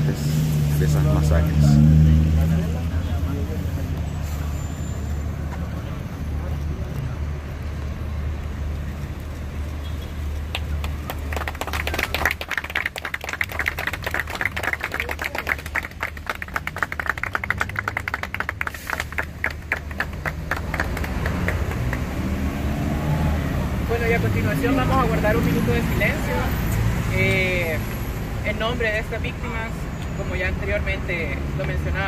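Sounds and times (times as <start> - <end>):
city traffic rumble: 0.0 - 32.0
small group clapping: 10.4 - 22.5.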